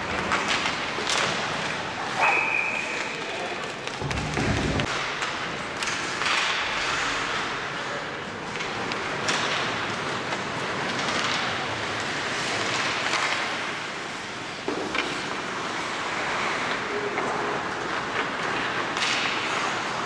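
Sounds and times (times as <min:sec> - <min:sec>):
hockey sticks and puck clacking: 0:00.0 - 0:20.0
skates scraping ice: 0:00.0 - 0:20.0.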